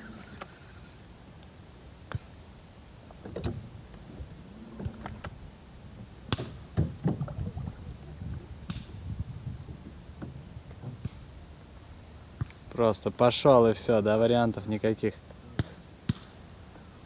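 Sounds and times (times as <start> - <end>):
wooden oars knocking and creaking: 6.3 - 8.9, 9.7 - 11.2.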